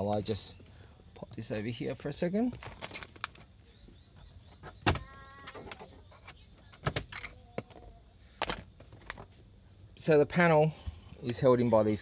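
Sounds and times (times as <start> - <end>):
plastic squeak: 4.6 - 7.4.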